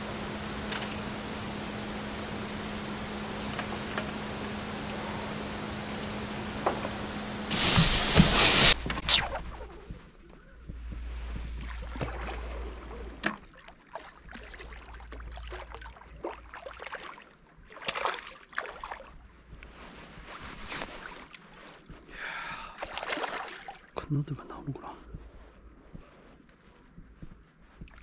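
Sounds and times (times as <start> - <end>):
wind rumble on microphone: 8.4 - 13.2
soft splashing: 10.6 - 19.2, 22.7 - 24.0.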